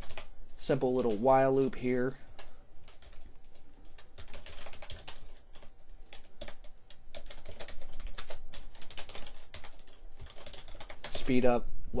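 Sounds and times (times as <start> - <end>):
keyboard typing: 0.0 - 0.3, 0.9 - 1.4, 2.3 - 11.4.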